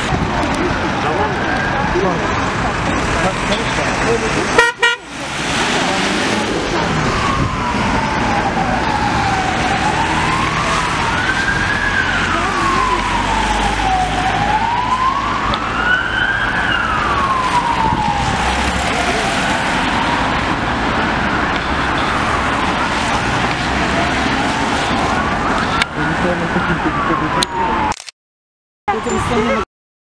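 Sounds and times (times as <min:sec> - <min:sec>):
traffic hiss on wet road: 0:00.0 - 0:07.7, 0:17.4 - 0:27.0
emergency siren wailing: 0:00.0 - 0:28.0.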